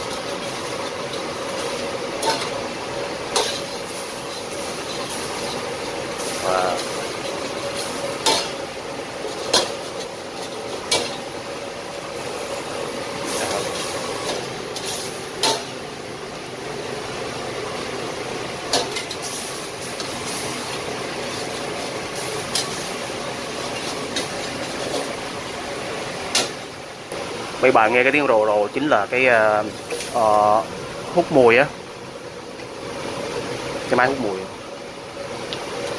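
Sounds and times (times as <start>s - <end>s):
metal ladle scraping a wok: 0.0s - 2.6s, 3.3s - 11.3s, 13.2s - 15.8s, 18.7s - 25.2s
range hood rumble: 0.0s - 34.0s.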